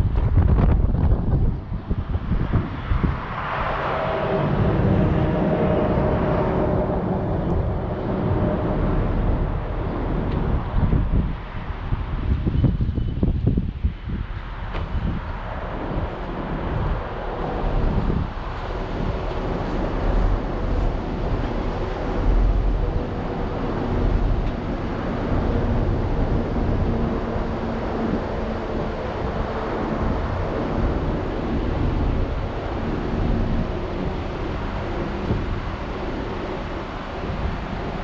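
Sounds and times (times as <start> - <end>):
car road and engine noise: 0.0 - 38.0
wind buffeting microphone: 0.0 - 38.0.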